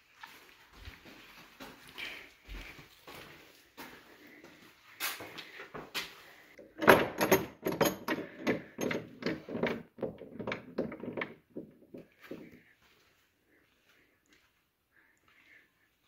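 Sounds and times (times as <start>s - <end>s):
door latch bar knocking and rattling: 6.8s - 11.8s.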